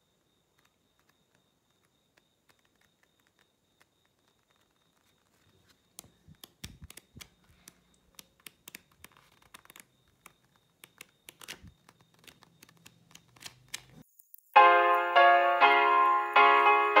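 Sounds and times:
paper pages flicking: 0:00.6 - 0:14.0.

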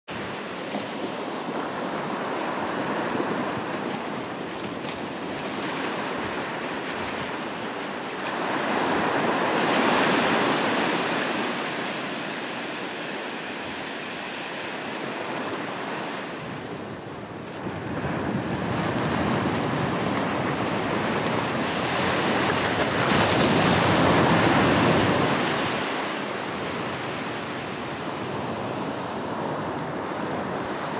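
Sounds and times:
wind: 0:00.0 - 0:30.9
waves breaking: 0:00.2 - 0:30.9.

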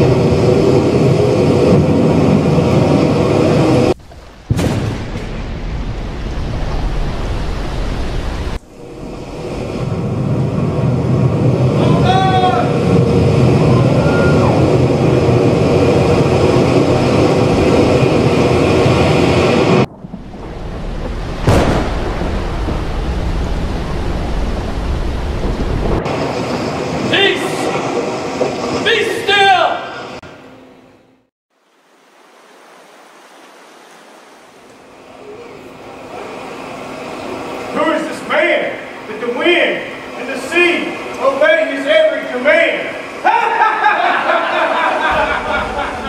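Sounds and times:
deep rumble: 0:00.0 - 0:28.8, 0:45.1 - 0:46.0
thunderclap: 0:00.0 - 0:28.8, 0:44.9 - 0:46.0
sea waves rushing: 0:00.0 - 0:30.2, 0:31.8 - 0:46.0
storm wind: 0:00.0 - 0:30.2, 0:35.0 - 0:46.0.

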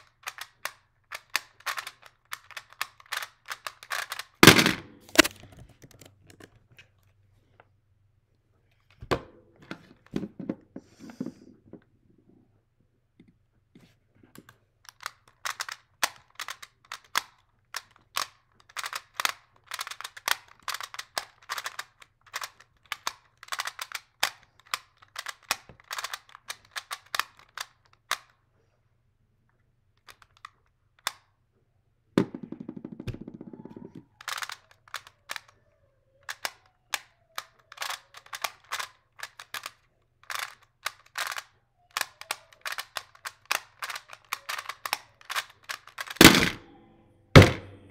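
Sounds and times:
puzzle dials clicking: 0:00.0 - 0:05.4, 0:36.2 - 0:46.6.

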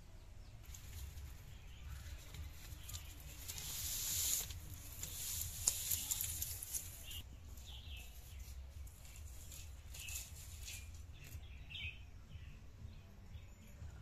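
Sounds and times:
birds chirping: 0:00.0 - 0:14.0
dry sticks rustling and clattering: 0:00.6 - 0:11.7.

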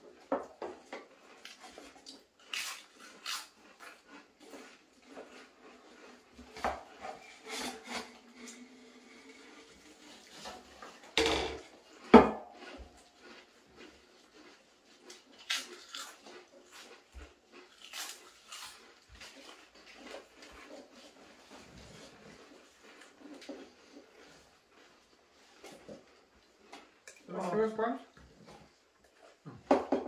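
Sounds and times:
crisps being crunched and chewed: 0:01.2 - 0:06.1, 0:12.6 - 0:20.7.

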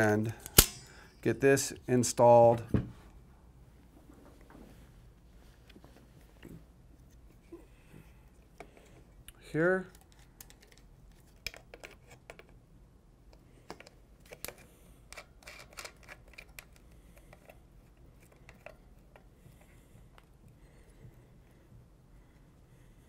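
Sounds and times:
metal bipod clicks and scrapes: 0:13.8 - 0:17.5.

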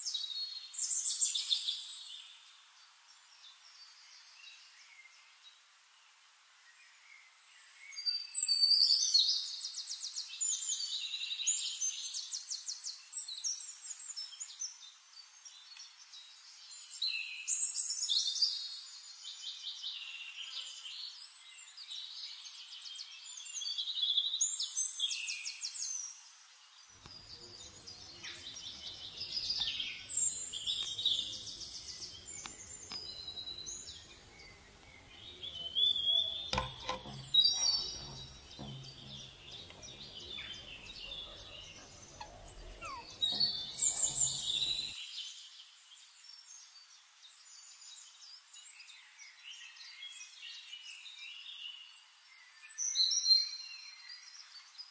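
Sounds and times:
small birds singing: 0:00.0 - 0:05.7, 0:06.6 - 0:54.9
sharp knocks: 0:36.4 - 0:44.9.

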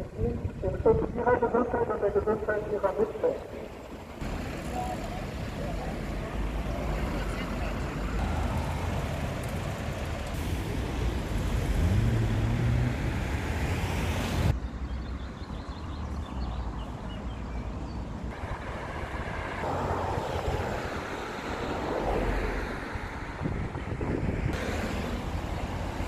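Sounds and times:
quiet street ambience: 0:00.0 - 0:26.0
road traffic: 0:00.0 - 0:26.0
vehicle engine rising in pitch: 0:10.4 - 0:14.5.

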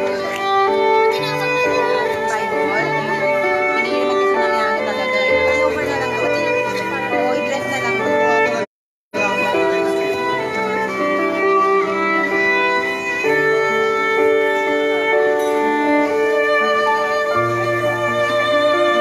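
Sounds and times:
slow violin music: 0:00.0 - 0:19.0.

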